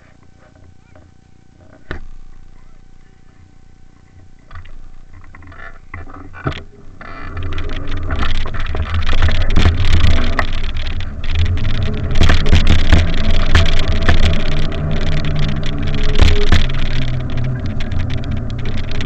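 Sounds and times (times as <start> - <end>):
wind buffeting microphone: 7.4 - 19.0
handling knocks: 8.0 - 19.0.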